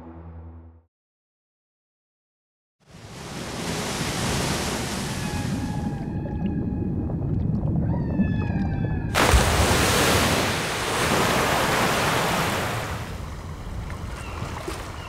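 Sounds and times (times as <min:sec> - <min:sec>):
sea noise: 0:02.8 - 0:15.0
rush of surging water: 0:03.0 - 0:05.4, 0:09.2 - 0:15.0
deep underwater rumble: 0:05.2 - 0:09.2.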